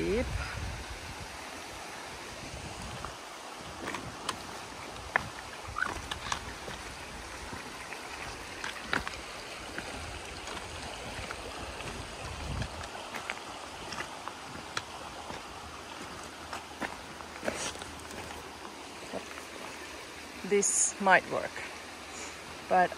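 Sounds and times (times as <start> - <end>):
river flowing: 0.0 - 22.9
footsteps on river cobbles: 2.8 - 20.0.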